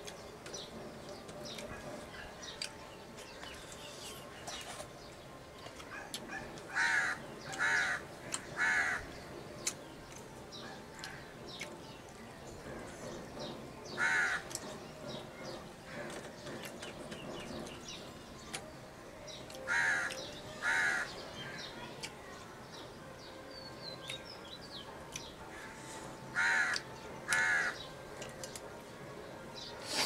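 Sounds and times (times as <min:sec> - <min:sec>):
small birds chirping: 0:00.0 - 0:28.7
crow cawing: 0:06.7 - 0:08.0, 0:08.6 - 0:09.0, 0:14.0 - 0:14.4, 0:19.7 - 0:21.1, 0:26.4 - 0:27.8.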